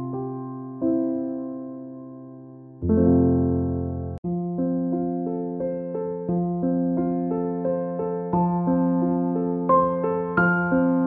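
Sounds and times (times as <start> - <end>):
gentle keyboard melody: 0.0 - 11.0.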